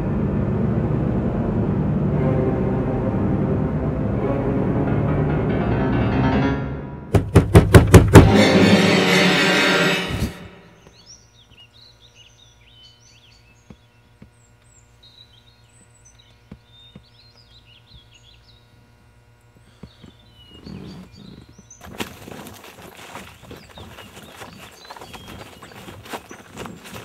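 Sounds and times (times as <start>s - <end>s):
low hum: 0.0s - 7.3s
small birds chirping: 10.8s - 27.0s
footsteps through undergrowth: 19.9s - 27.0s.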